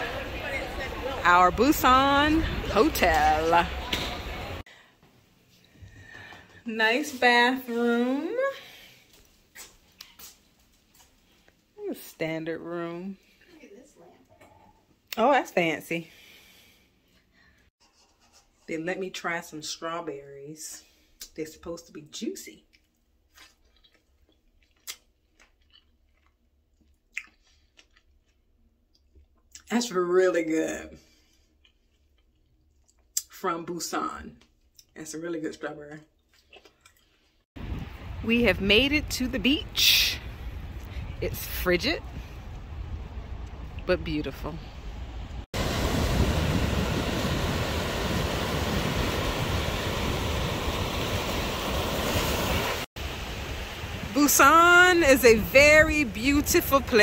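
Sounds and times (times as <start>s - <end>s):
wind rumbling on microphone: 0.0s - 4.6s, 37.6s - 57.0s
wet chewing: 22.6s - 29.7s, 31.1s - 33.3s, 36.0s - 37.4s
surf washing onto beach: 45.6s - 57.0s.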